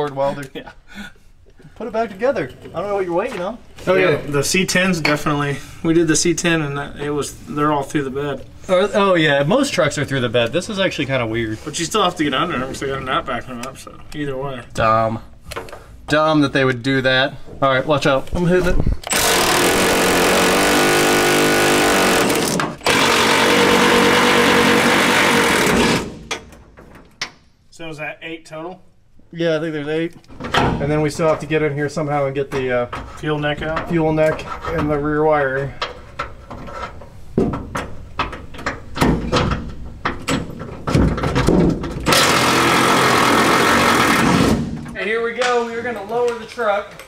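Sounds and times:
impact wrench hammering: 19.0s - 26.6s, 42.1s - 44.9s.

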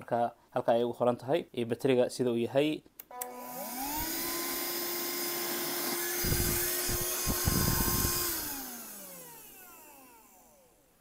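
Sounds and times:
handheld vacuum cleaner motor whine: 3.1s - 10.8s.

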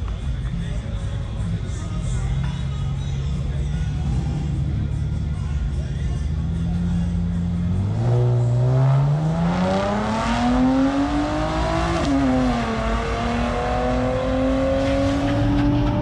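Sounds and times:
truck engine revving hard: 4.0s - 4.7s, 7.6s - 16.0s.

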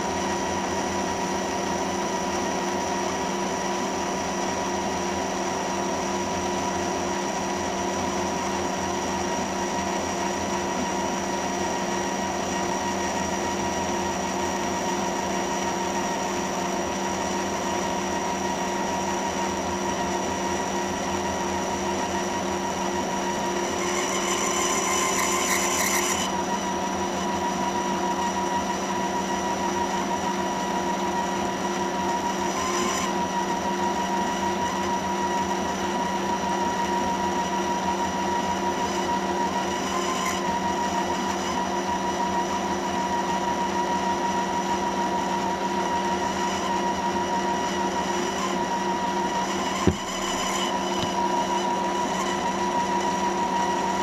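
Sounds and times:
metal lathe motor and gear whine: 0.0s - 54.0s
boring bar cutting metal: 17.2s - 29.9s, 31.9s - 54.0s.

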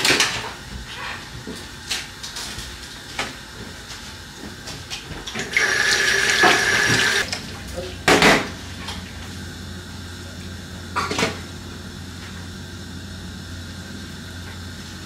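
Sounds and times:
tap water running: 5.2s - 7.3s.

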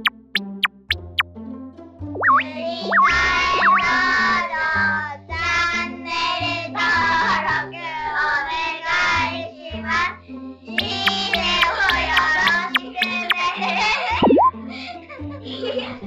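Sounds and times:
springy boing sound effect: 0.0s - 1.2s, 2.2s - 4.0s, 14.2s - 14.5s
stepping bass line: 0.0s - 1.2s, 10.8s - 13.4s.

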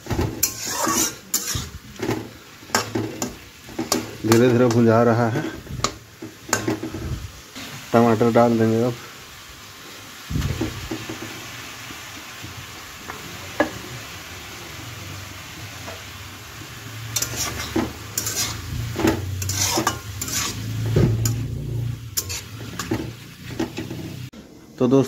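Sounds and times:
metal spatula scraping pan: 0.0s - 7.8s, 17.0s - 24.3s
vegetables sizzling: 0.0s - 25.0s.

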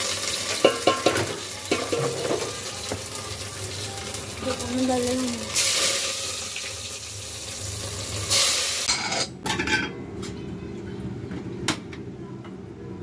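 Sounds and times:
tomatoes sizzling in a pan: 0.0s - 9.1s
pots and lids clinking: 0.4s - 3.1s, 8.3s - 10.0s.

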